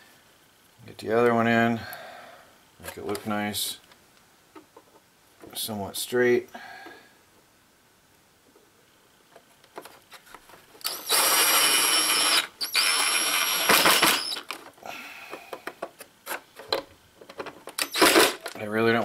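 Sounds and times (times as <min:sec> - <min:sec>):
drill motor whine: 0:10.8 - 0:14.5, 0:17.8 - 0:18.4.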